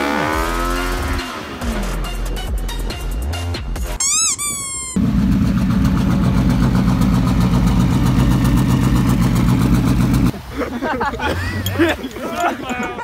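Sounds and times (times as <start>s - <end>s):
high wavering squeal: 4.0s - 5.0s
car engine idling: 5.0s - 10.3s.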